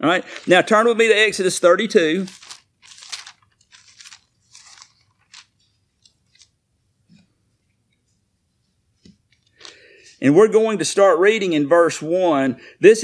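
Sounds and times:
book pages rustling: 0.2 - 1.2, 2.0 - 8.1, 9.0 - 9.9.

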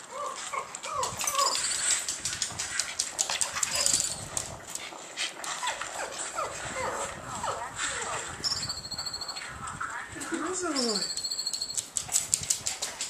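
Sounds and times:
small dog whining: 0.1 - 2.0
dog claws clicking on floor: 0.4 - 5.9, 11.1 - 13.0.

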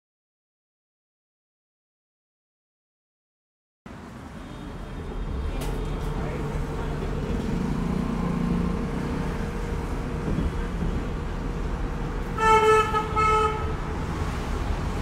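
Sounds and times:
road traffic: 3.9 - 15.0
vehicle horn toots: 12.4 - 13.9.

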